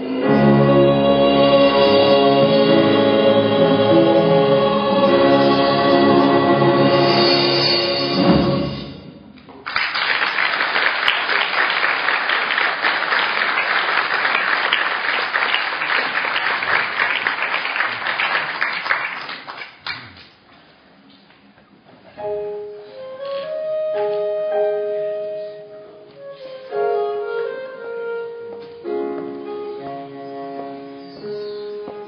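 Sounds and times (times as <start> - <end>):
audience applauding: 9.6 - 20.3
piano playing slow held notes: 22.2 - 32.0.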